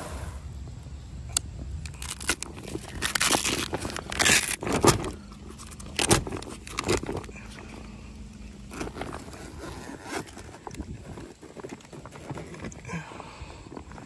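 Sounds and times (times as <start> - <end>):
faint low hum: 0.0 - 14.0
wet fabric rustling and scraping: 1.9 - 12.9.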